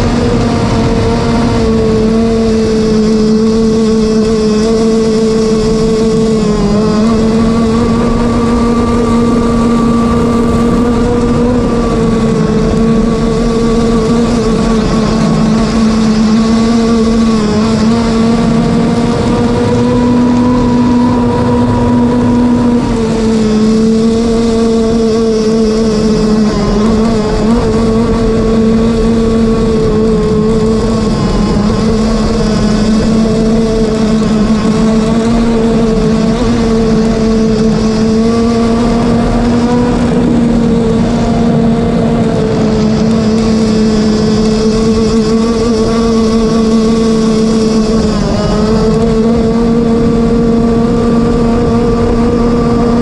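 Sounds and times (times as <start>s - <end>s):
boat engine high-pitched buzz: 0.0s - 53.0s.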